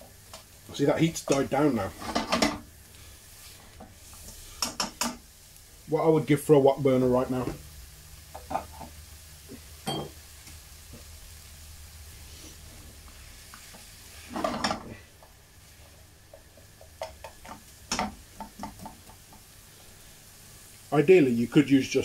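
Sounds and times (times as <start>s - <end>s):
faint sizzle: 0.0s - 22.0s
utensil scraping a pan: 1.8s - 2.6s, 13.7s - 15.0s.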